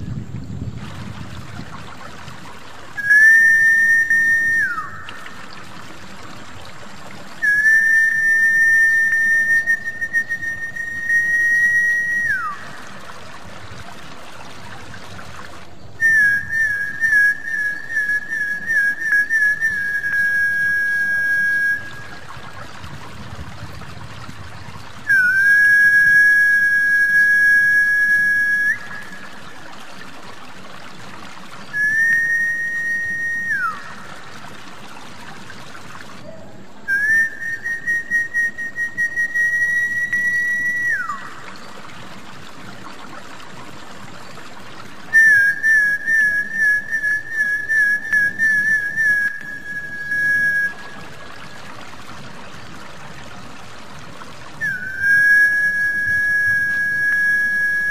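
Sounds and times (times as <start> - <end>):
trickle of running water: 0.0 - 57.9
high whistled notes: 3.0 - 5.4, 7.4 - 12.7, 25.1 - 29.3, 31.8 - 34.0, 36.9 - 41.4, 45.2 - 51.0, 54.6 - 57.9.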